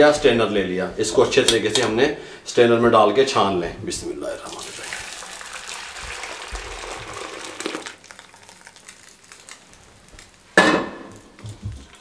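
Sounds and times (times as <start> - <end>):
thick milk pouring into strainer: 4.4 - 10.5.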